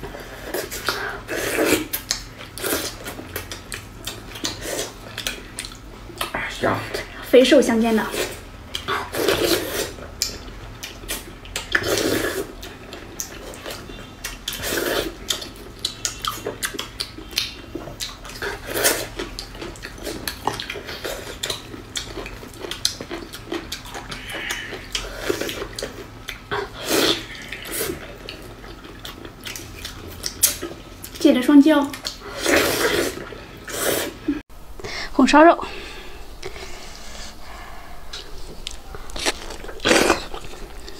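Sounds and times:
wet chewing: 0:00.0 - 0:07.1, 0:08.1 - 0:34.1, 0:36.4 - 0:40.9
slurping: 0:00.2 - 0:05.8, 0:08.1 - 0:17.1, 0:18.0 - 0:30.8, 0:31.9 - 0:34.4, 0:36.4 - 0:40.9
lip-smacking: 0:01.6 - 0:06.4.

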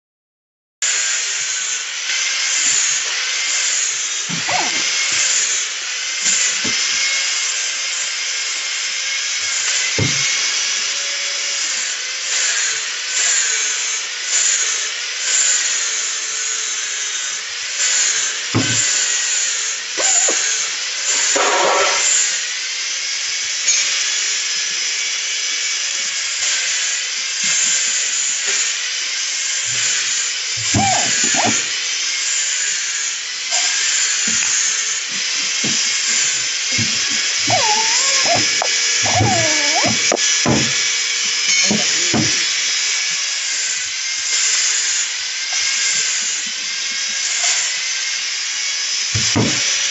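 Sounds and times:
bottle-capping tool whirring: 0:02.2 - 0:07.6, 0:17.8 - 0:22.2, 0:29.5 - 0:43.2, 0:49.1 - 0:49.9
bottles knocking: 0:36.8 - 0:40.8.

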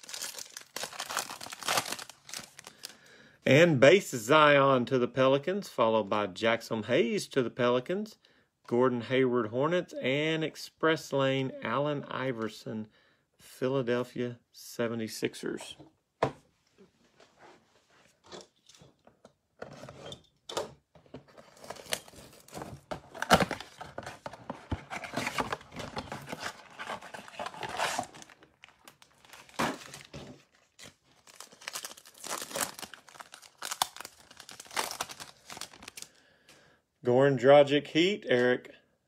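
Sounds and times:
wrapper tearing and crinkling: 0:00.0 - 0:02.9, 0:21.5 - 0:23.9, 0:25.0 - 0:36.1
cardboard box tearing: 0:21.4 - 0:28.4.

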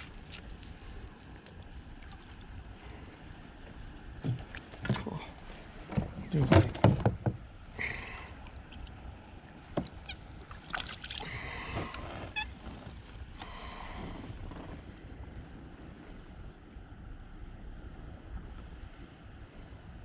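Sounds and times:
water splashing: 0:00.0 - 0:07.0, 0:07.6 - 0:12.5.

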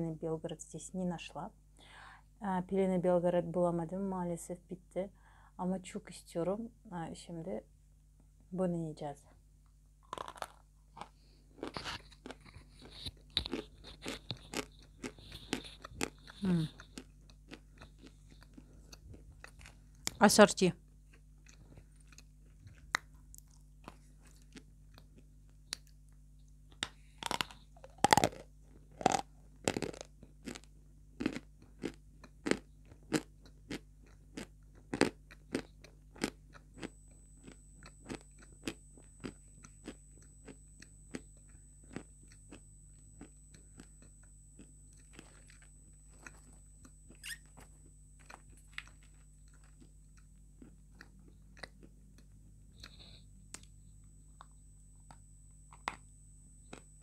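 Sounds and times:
crunchy chewing: 0:10.0 - 0:20.2, 0:21.0 - 0:53.8
faint high whine: 0:35.7 - 0:57.0.

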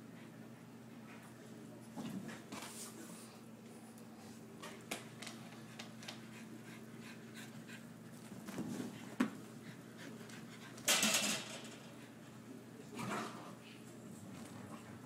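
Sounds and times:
dog panting and snuffling: 0:05.5 - 0:10.9.

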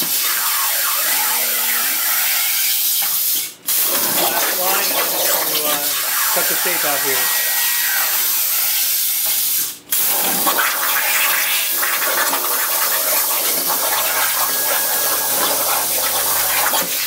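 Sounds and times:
plasma torch hissing: 0:02.3 - 0:12.0, 0:13.6 - 0:17.0.

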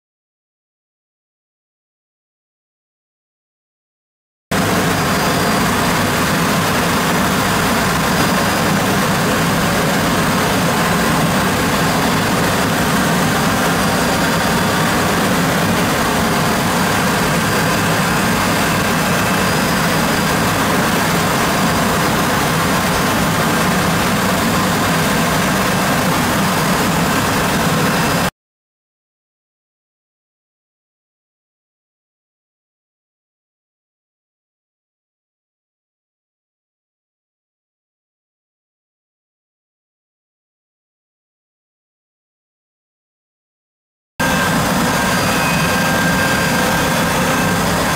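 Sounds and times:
milling machine cutting hiss: 0:44.2 - 0:47.9.

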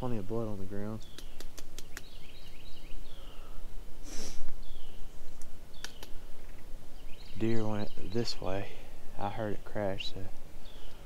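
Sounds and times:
faint bird chirps: 0:00.0 - 0:11.0
sharp breath through nose: 0:03.1 - 0:04.5.

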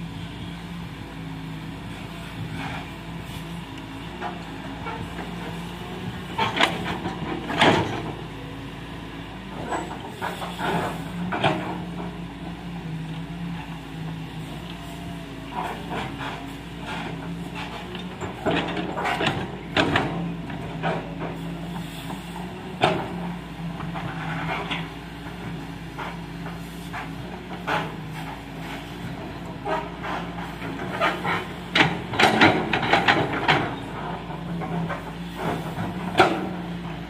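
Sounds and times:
excavator diesel engine running: 0:00.0 - 0:37.0
machine knocking and clanking: 0:04.2 - 0:08.4, 0:09.5 - 0:12.5, 0:15.5 - 0:37.0.

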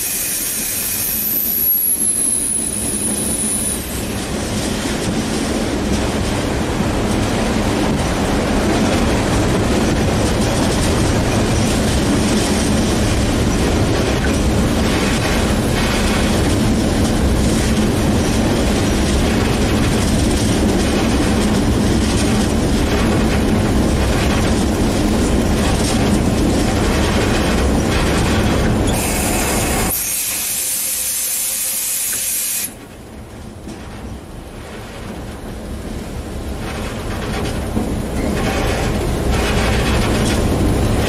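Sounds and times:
loud hiss: 0:00.0 - 0:01.8, 0:29.0 - 0:32.8
wind noise: 0:00.0 - 0:30.0, 0:32.7 - 0:41.0
diesel locomotive engine rumble: 0:00.0 - 0:41.0
wheels clattering over rail joints: 0:36.2 - 0:41.0.

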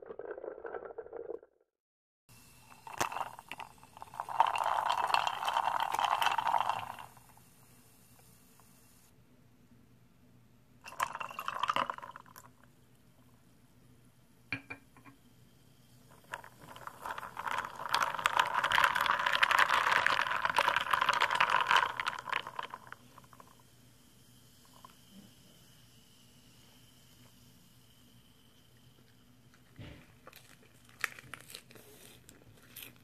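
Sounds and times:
drink fizzing and crackling: 0:00.0 - 0:01.5, 0:02.4 - 0:07.6, 0:10.9 - 0:12.8, 0:15.9 - 0:33.0.

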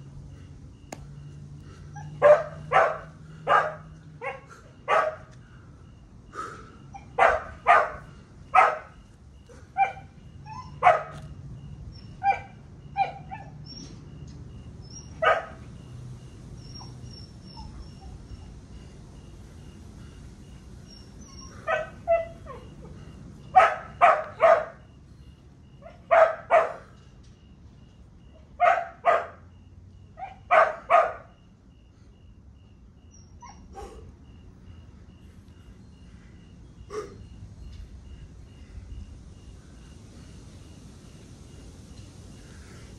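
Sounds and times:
dog barking: 0:02.0 - 0:05.3, 0:07.0 - 0:09.0, 0:09.8 - 0:11.2, 0:12.2 - 0:13.6, 0:15.2 - 0:15.6, 0:21.4 - 0:22.7, 0:23.5 - 0:24.8, 0:25.8 - 0:26.9, 0:28.6 - 0:29.4, 0:30.2 - 0:31.3, 0:33.5 - 0:34.1.

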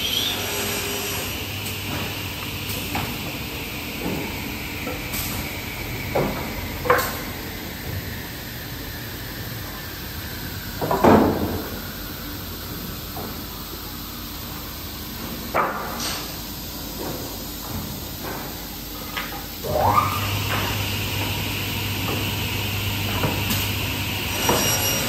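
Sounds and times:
low machine hum: 0:18.8 - 0:25.0.

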